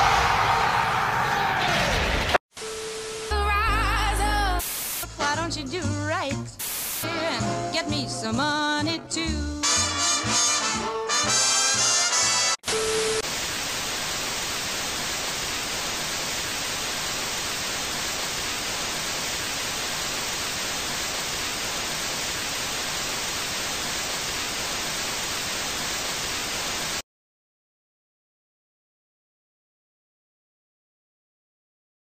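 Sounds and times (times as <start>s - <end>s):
television static hiss: 2.6s - 5.4s, 6.6s - 7.0s, 12.7s - 27.0s.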